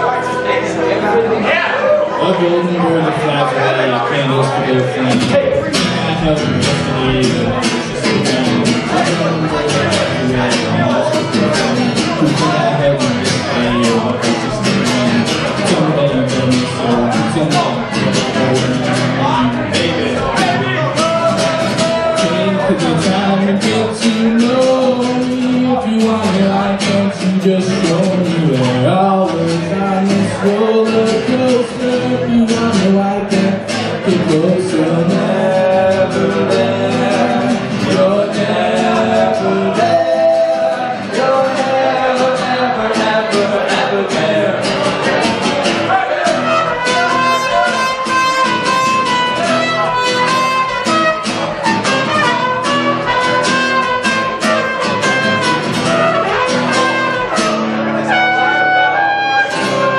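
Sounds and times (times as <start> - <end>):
acoustic guitar: 0.0 - 59.9
man singing: 0.0 - 59.9
trumpet holding notes: 46.4 - 59.9.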